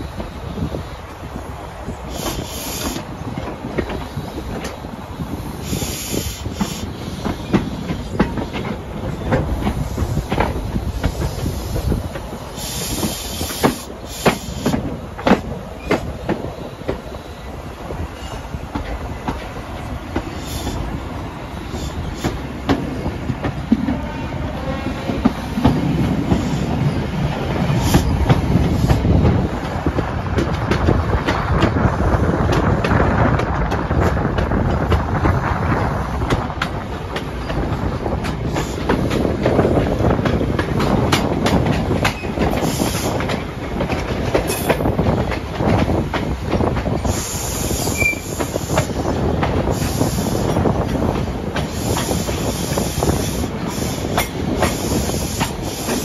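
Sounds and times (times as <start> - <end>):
train wheels clicking over rail joints: 0.0 - 56.0
wheel squeal: 47.0 - 48.4.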